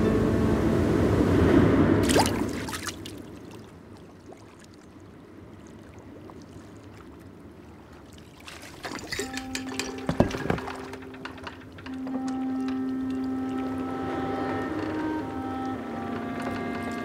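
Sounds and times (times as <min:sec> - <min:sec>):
fishing float splashing into water: 0:02.0 - 0:03.5
water lapping: 0:02.0 - 0:17.0.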